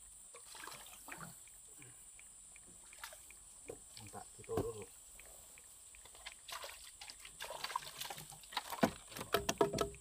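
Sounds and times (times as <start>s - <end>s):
water sloshing: 6.0s - 10.0s.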